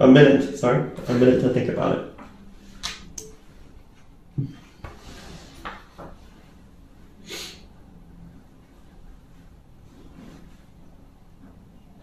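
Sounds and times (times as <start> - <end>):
short breathy hiss: 7.2 - 7.7.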